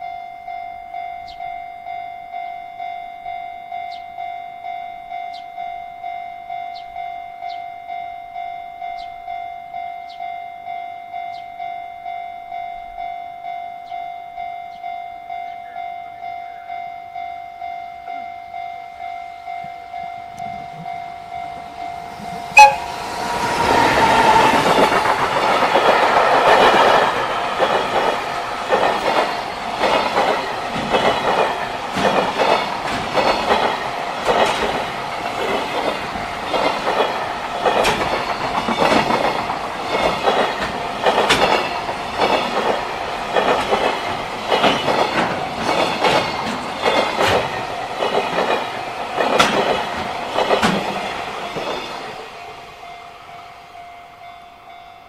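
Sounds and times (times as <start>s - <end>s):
level-crossing bell ringing: 0.0s - 25.3s, 51.0s - 55.0s
electric locomotive passing: 0.0s - 55.0s
wheels clickety-clack over rail joints: 19.5s - 52.8s
short train whistle blast: 22.5s - 23.1s.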